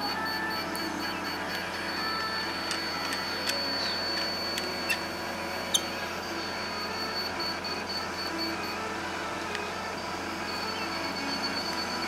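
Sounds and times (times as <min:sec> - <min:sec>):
short electronic beeps: 0:00.0 - 0:08.8
steady high electronic tone: 0:00.0 - 0:09.0.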